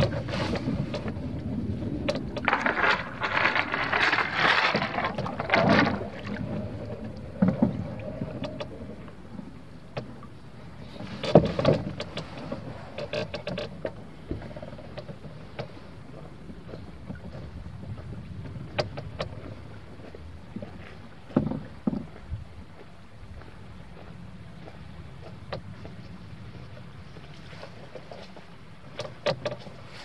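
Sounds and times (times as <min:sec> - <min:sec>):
low wash of water: 0:00.0 - 0:30.0
knocks against canoe: 0:21.3 - 0:22.1.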